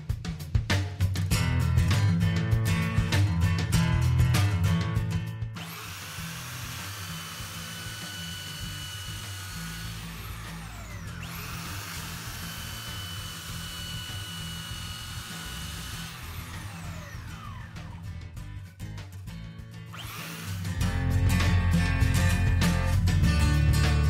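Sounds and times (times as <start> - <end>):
belt sander whirring: 5.6 - 18.3, 19.9 - 21.2.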